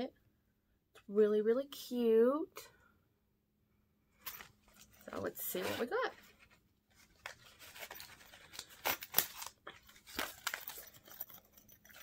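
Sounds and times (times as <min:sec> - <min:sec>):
packaging rustling and crackling: 0:04.2 - 0:12.0.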